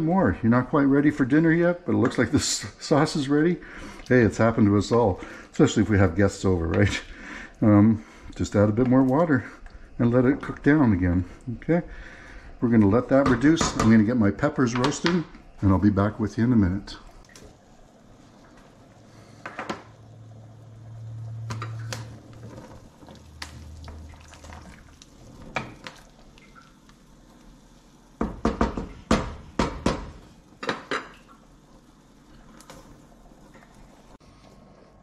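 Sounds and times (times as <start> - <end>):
low hum: 19.9 - 24.2.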